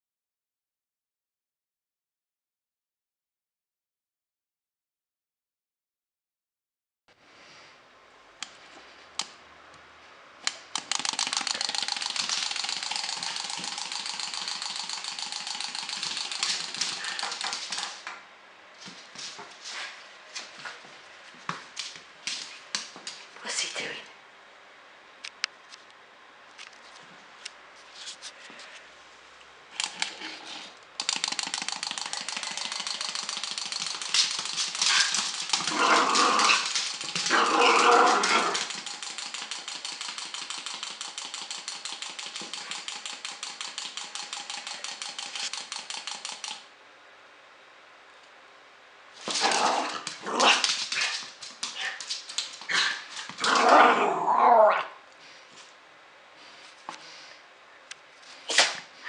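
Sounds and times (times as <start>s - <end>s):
toy ball whirring rattle: 10.8s - 18.0s, 31.0s - 46.7s
puppy barking and growling: 34.4s - 38.9s, 49.2s - 52.0s, 52.6s - 55.0s.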